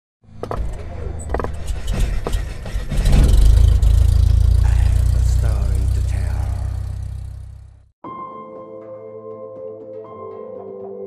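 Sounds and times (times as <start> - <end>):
sharp clicks and hits: 0.4 - 7.5
low steady rumble: 1.5 - 7.9.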